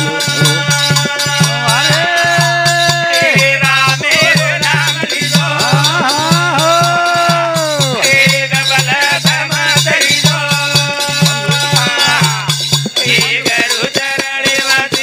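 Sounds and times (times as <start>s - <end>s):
man singing: 0.0s - 15.0s
rhythmic beat with rattling percussion: 0.0s - 15.0s.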